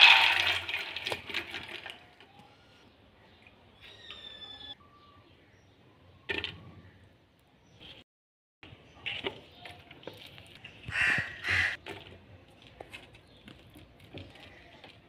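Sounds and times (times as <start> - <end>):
dry lentils pouring into metal pot: 0.0 - 1.9
chillies clattering: 8.7 - 15.0.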